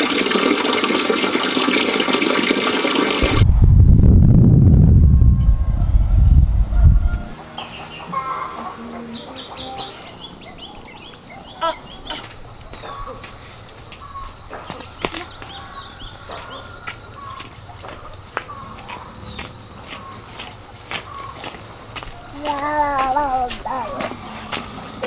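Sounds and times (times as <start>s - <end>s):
pulsing high insect call: 5.1s - 25.0s
small birds chirping: 7.6s - 25.0s.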